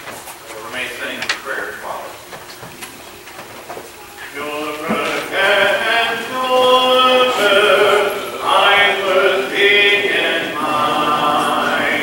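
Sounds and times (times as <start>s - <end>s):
congregation singing a hymn: 4.2s - 12.0s.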